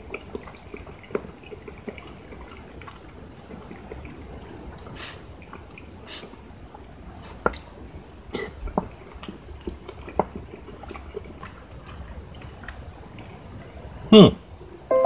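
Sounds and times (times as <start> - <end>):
spoon squishing through stew: 5.4 - 13.4.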